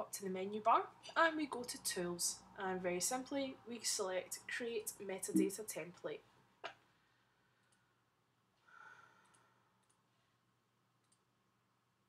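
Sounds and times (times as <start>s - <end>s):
computer mouse clicks: 9.2s - 10.0s.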